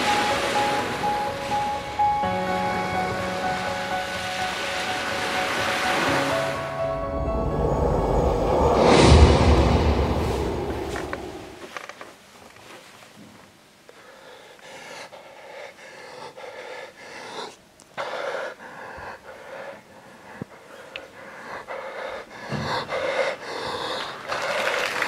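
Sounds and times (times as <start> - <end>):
man breathing heavily: 13.9 - 25.0.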